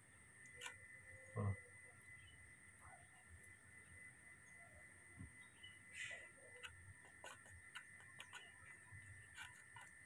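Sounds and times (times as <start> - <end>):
faint high whine: 0.0 - 10.0
spoon-feeding clicks and smacks: 6.5 - 10.0.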